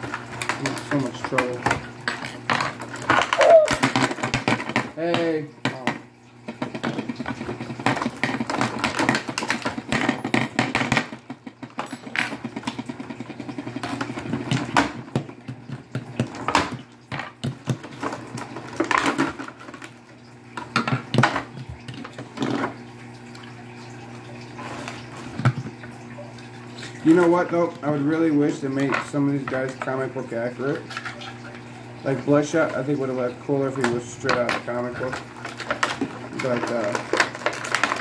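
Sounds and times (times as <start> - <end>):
plastic packaging crinkling: 35.1 - 38.0.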